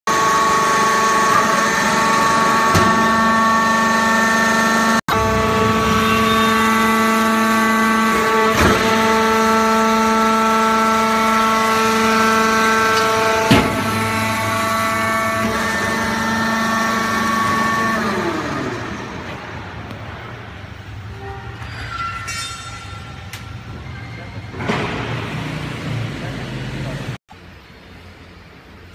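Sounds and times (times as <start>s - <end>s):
electric motor and pump whine: 0.1s - 21.1s.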